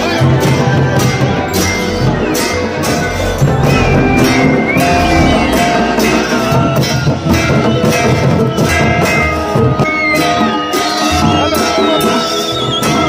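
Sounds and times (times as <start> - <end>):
folk drums driving beat: 0.0 - 13.0
high melodic line: 2.6 - 8.4.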